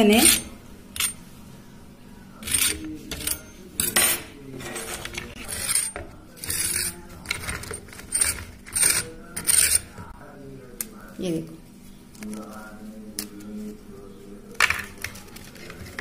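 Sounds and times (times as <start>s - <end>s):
fork clinking and scraping on plate: 2.4s - 10.0s.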